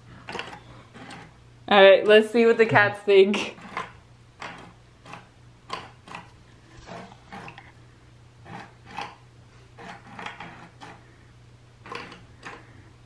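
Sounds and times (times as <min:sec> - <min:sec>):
low steady hum: 0:00.0 - 0:13.0
toy mechanism clicking and knocking: 0:00.2 - 0:01.3, 0:03.5 - 0:07.7, 0:08.5 - 0:09.2, 0:09.8 - 0:11.0, 0:11.8 - 0:12.7.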